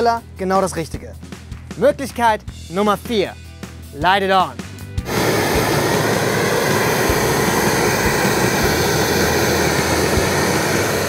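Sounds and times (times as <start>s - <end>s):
propane torch rushing hiss: 5.0s - 11.0s.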